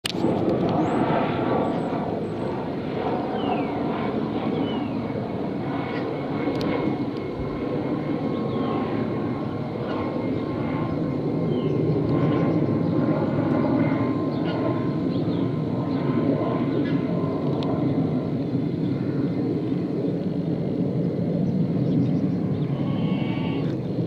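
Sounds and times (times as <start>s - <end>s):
helicopter flying overhead: 0.0s - 24.0s
high whine: 21.4s - 24.0s.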